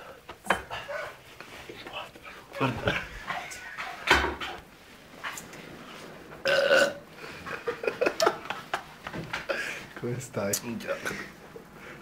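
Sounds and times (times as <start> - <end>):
person belching loudly: 6.4 - 7.0.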